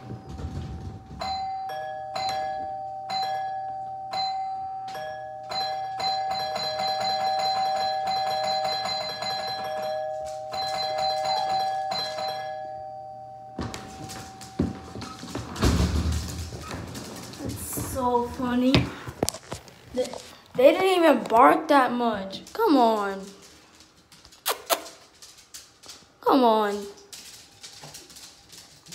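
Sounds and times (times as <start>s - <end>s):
two-tone doorbell chime: 0.0s - 15.5s.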